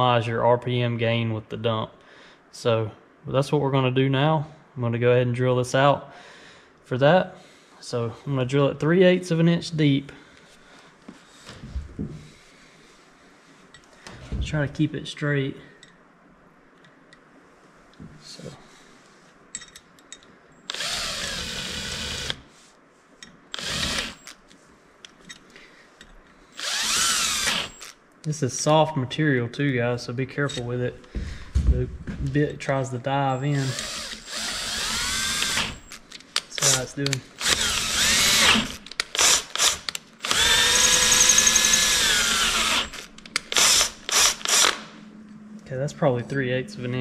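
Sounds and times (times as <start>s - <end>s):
cordless drill boring metal: 20.7s - 22.4s, 23.5s - 24.4s, 26.6s - 28.0s, 33.4s - 36.0s, 36.6s - 44.8s.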